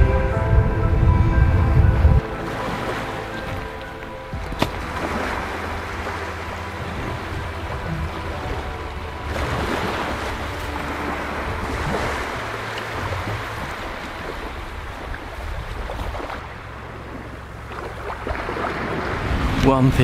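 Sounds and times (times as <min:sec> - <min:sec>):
wind on the microphone: 0:00.0 - 0:02.3
waves washing on a beach: 0:02.2 - 0:20.0.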